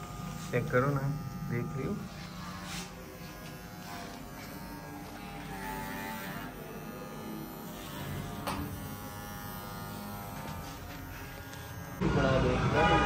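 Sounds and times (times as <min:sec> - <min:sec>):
electric hair clippers buzzing: 0:00.0 - 0:13.0.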